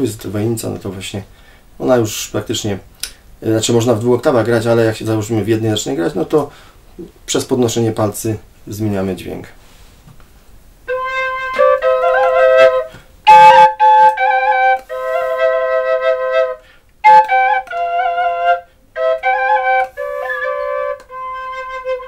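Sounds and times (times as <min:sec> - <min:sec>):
wooden double flute playing melody: 0:10.9 - 0:22.0.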